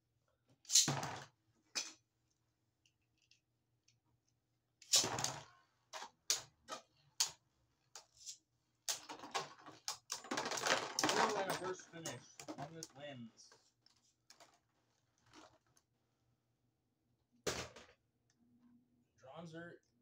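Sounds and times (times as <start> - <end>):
plastic parts clattering: 4.8 - 7.4, 8.0 - 15.8.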